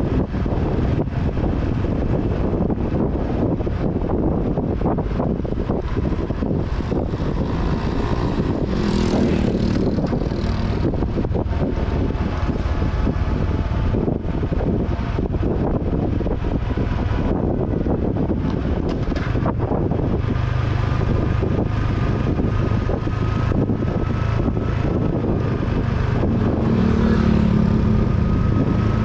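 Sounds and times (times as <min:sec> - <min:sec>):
motorcycle engine running: 0:00.0 - 0:29.0
wind buffeting microphone: 0:00.0 - 0:29.0.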